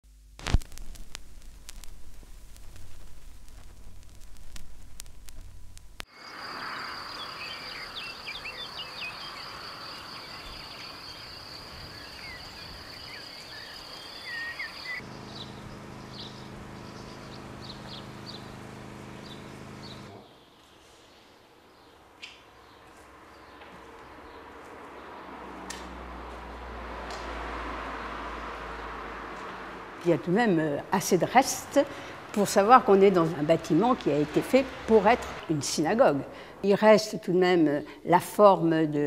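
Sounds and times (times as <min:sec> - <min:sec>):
low steady hum: 0:00.0 - 0:06.0
crackle and clicks: 0:00.0 - 0:06.1
high insect trill: 0:06.0 - 0:18.0
bird chirps: 0:06.2 - 0:18.5.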